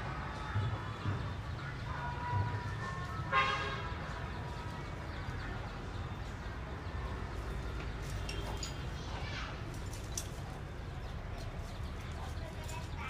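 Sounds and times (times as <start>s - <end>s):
distant traffic rumble: 0.0s - 13.0s
horn toot: 3.3s - 4.0s.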